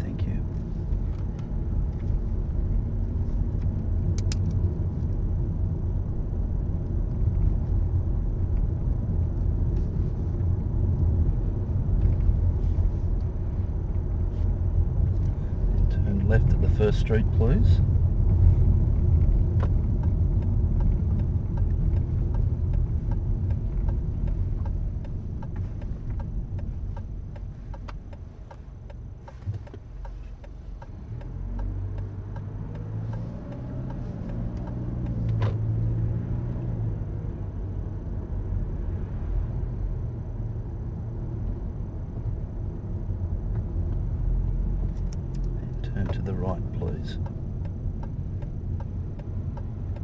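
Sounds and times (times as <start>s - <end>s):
car engine and road rumble: 0.0s - 50.0s.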